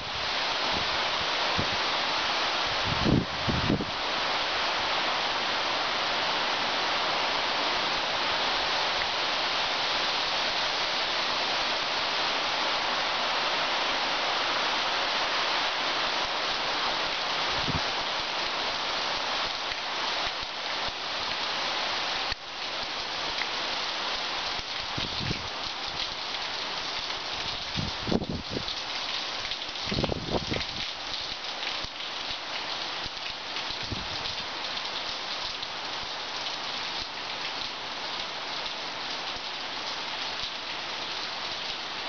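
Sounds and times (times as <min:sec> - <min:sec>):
heavy rain on foliage: 0:00.0 - 0:42.0.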